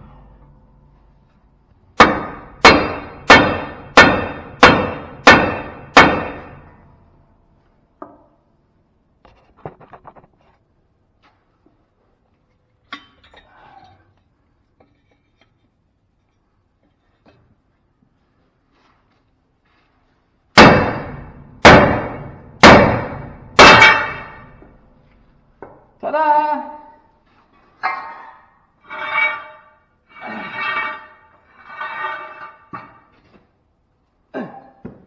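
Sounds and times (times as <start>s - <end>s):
hammer striking steel: 2.0s - 7.0s, 20.5s - 24.7s.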